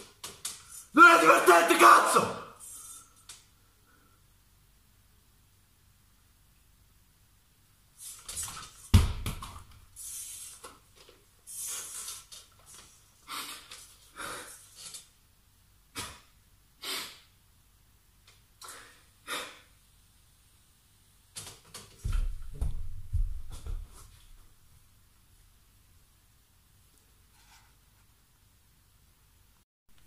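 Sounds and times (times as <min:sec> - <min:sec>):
man breathing hard: 0:13.3 - 0:14.8
thump: 0:22.0 - 0:24.0.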